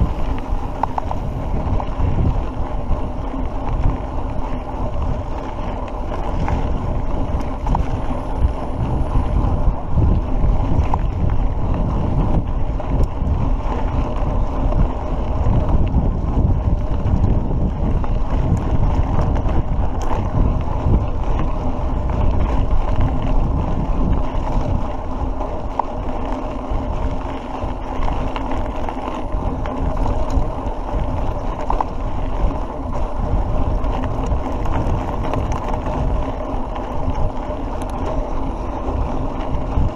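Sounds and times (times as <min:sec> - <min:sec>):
tyres rolling on dirt track: 0:00.0 - 0:39.9
wind buffeting microphone: 0:00.0 - 0:39.9
faint clicks: 0:36.8 - 0:38.5.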